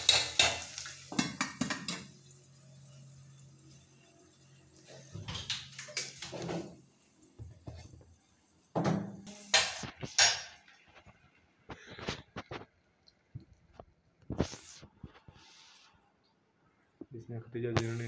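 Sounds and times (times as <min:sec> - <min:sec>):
metal kitchenware clattering: 0:00.0 - 0:02.2.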